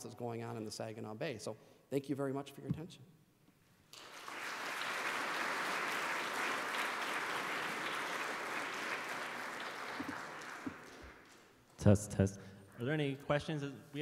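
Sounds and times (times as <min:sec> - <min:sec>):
audience applauding: 0:03.9 - 0:11.6.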